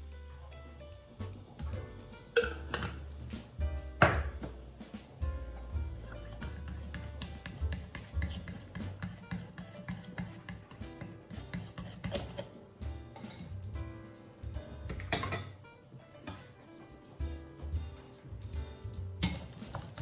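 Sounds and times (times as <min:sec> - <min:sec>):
fork scraping ceramic bowl: 0:05.8 - 0:12.5.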